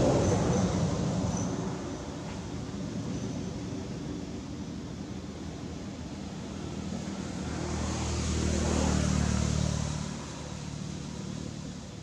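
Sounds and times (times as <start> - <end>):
vehicle driving past: 7.2 - 11.8.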